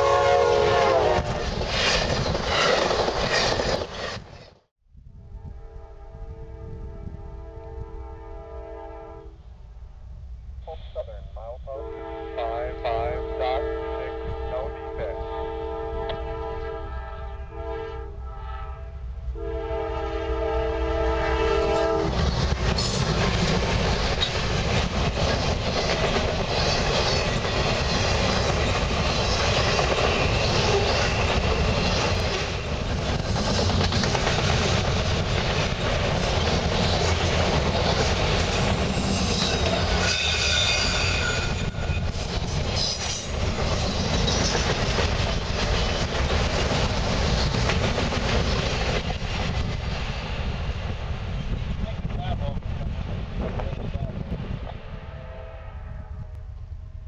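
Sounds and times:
locomotive air horn: 0.0s - 1.4s, 5.2s - 9.4s, 11.7s - 22.1s, 54.9s - 56.4s
freight train rolling past: 0.0s - 57.0s.

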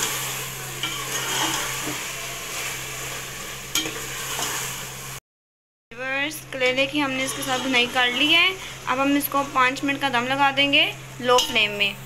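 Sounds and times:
metal spoon scraping a steel pot: 0.0s - 4.8s, 6.6s - 8.5s, 11.3s - 11.8s
food sizzling in oil: 0.0s - 5.2s, 6.0s - 12.0s.

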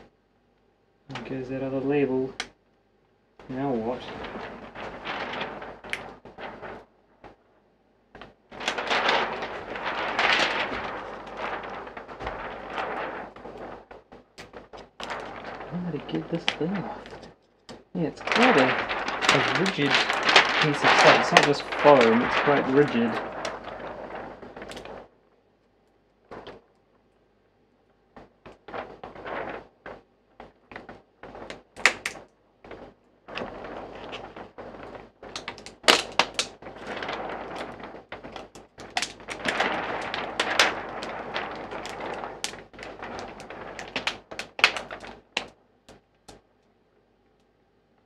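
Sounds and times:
plastic strip peeling and crackling: 1.1s - 2.6s, 3.4s - 7.5s, 8.1s - 27.2s, 28.0s - 47.5s.

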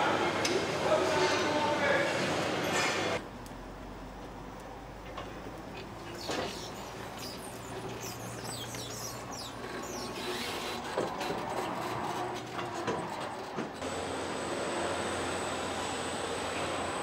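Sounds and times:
machinery hum: 0.0s - 17.0s
high chirps and squeaks: 6.2s - 10.8s.

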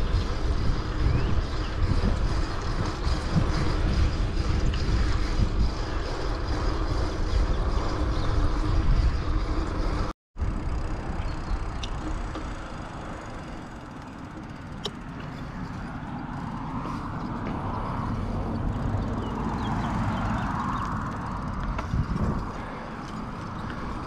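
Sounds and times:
wind rushing over microphone: 0.0s - 10.6s, 15.0s - 24.0s
bicycle tyres on asphalt: 0.0s - 24.0s.

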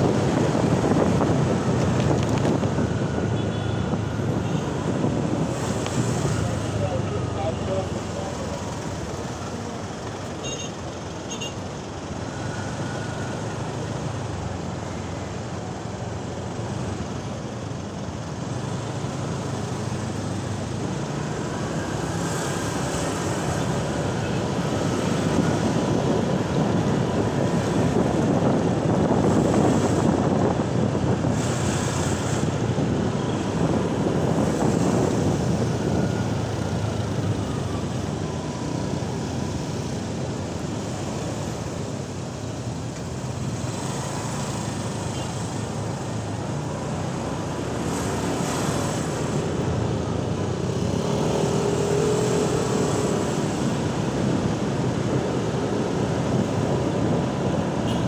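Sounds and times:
wind rush on microphone: 0.0s - 6.9s, 20.7s - 58.0s
surrounding traffic: 0.0s - 58.0s.

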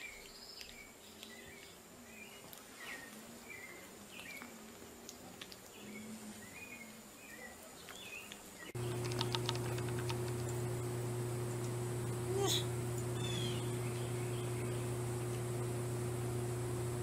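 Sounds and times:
steady low hum: 8.7s - 17.0s
quick run of clicks: 8.8s - 10.6s
high chirping calls: 12.5s - 15.2s.

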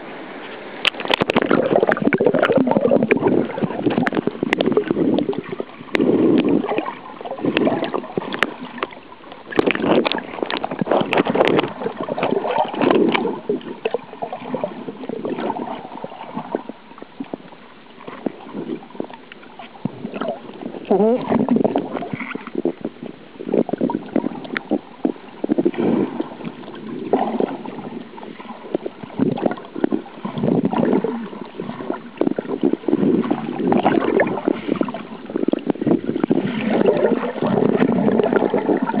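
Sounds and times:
muffled underwater rushing water: 0.0s - 39.0s
sharp underwater clicks: 0.8s - 14.6s.

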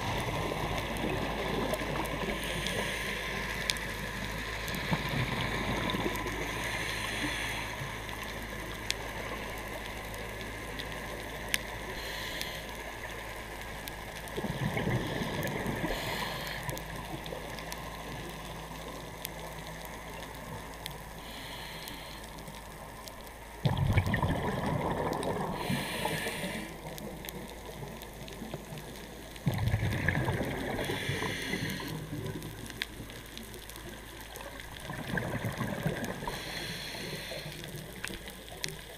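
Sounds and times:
regulator inhale hisses: 2.2s - 4.0s, 6.4s - 8.0s, 11.9s - 13.0s, 15.4s - 16.8s, 21.2s - 22.5s, 25.5s - 26.8s, 30.7s - 32.2s, 36.2s - 38.0s
exhaled air bubbling: 14.2s - 18.2s, 23.6s - 38.9s.

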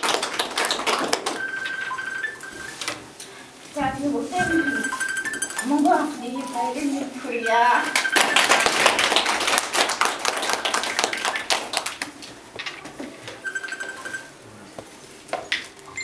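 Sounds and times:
small group clapping: 0.0s - 2.0s, 7.8s - 12.8s.

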